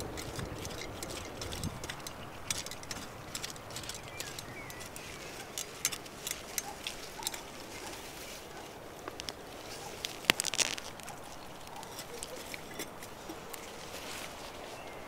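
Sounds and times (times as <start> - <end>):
bird chirping: 0.0 - 8.0
hoe scraping soil: 0.0 - 8.8, 11.8 - 15.0.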